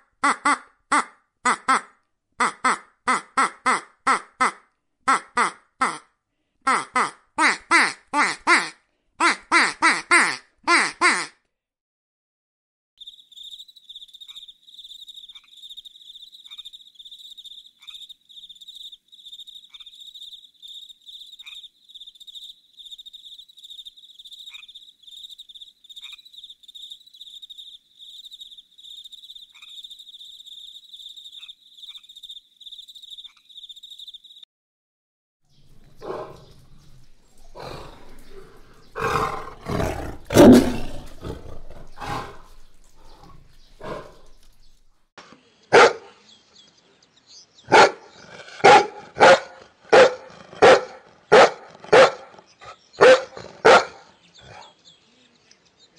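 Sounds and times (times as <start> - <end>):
faint regular ticks: 13.0 - 34.4, 35.6 - 45.0
tiger growling and roaring: 35.7 - 44.8.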